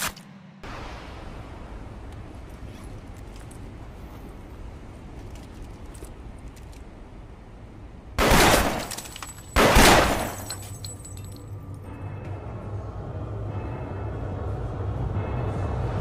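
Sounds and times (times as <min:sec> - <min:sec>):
train carriage rumble: 0:00.4 - 0:16.0
pistol shots: 0:08.2 - 0:09.0, 0:09.6 - 0:10.4.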